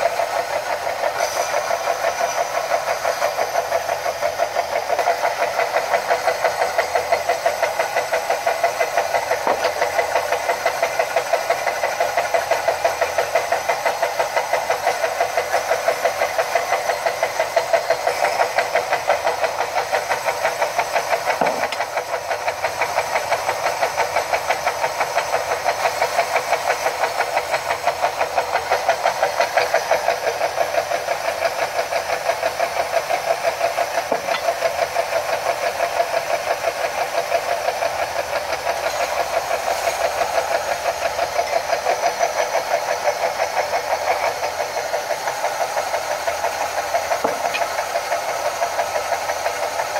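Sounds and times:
belt sanders grinding glass: 34.1s - 34.8s.

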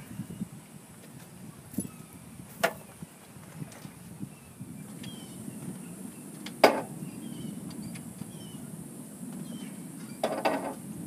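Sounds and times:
knocks of tools in engine bay: 10.2s - 10.8s.

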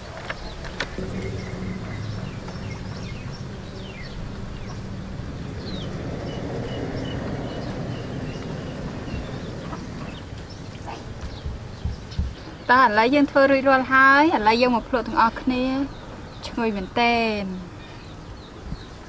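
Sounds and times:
small birds chirping: 0.0s - 19.0s
steady low background noise: 0.0s - 19.0s
thin high held note: 0.9s - 7.1s.

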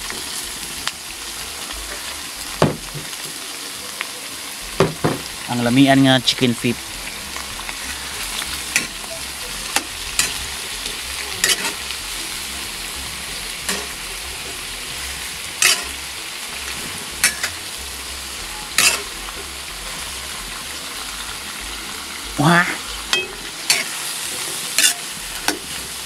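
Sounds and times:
chicken feet frying in oil: 0.0s - 26.0s
metal utensil scraping a wok: 7.0s - 21.0s, 23.1s - 26.0s.

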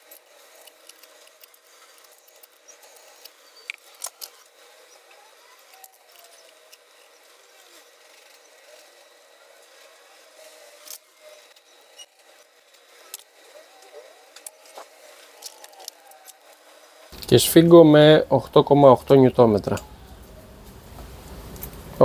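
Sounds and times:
screwdriver turning screws: 0.0s - 16.6s.

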